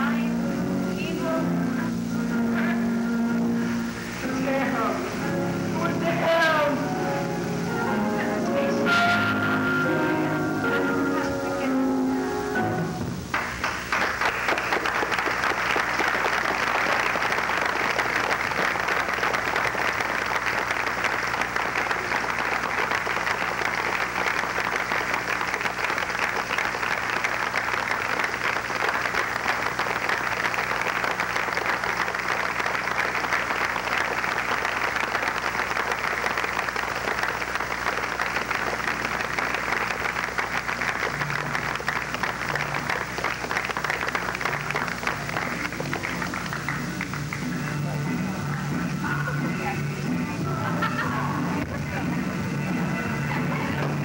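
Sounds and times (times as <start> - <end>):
low instrument notes: 0.0 - 13.3
audience applauding: 3.6 - 49.7.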